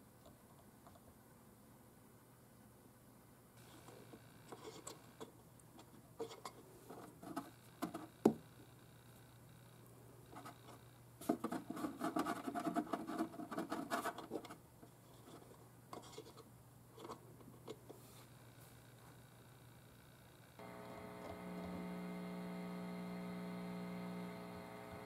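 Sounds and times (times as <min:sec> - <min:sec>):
steady low hum: 0:14.7 - 0:25.0
speaker lead crackles and clicks: 0:20.6 - 0:25.0.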